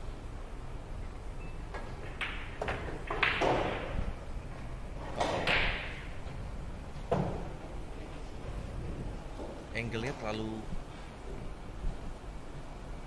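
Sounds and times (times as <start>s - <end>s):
pool balls clicking: 1.0s - 10.4s
ball dropping into pocket: 1.7s - 4.2s, 5.0s - 6.3s
cue striking ball: 1.7s - 8.3s.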